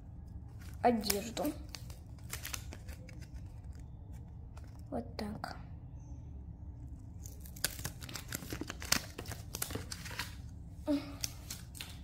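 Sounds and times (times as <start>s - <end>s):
paper crinkling: 0.2s - 4.9s, 7.1s - 10.5s, 11.1s - 12.0s.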